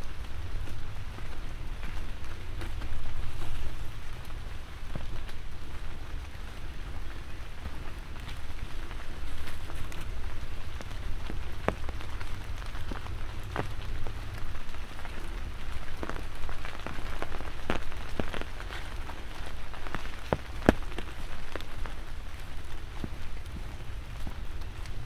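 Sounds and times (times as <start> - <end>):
light rain falling: 0.0 - 25.0
raindrops ticking: 0.0 - 25.0
low rumble: 21.7 - 25.0.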